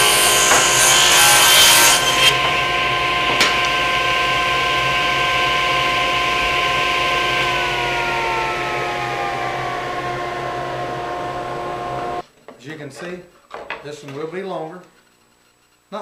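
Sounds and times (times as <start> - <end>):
saw ripping wood: 0.0 - 3.8
table saw whining: 0.0 - 12.2.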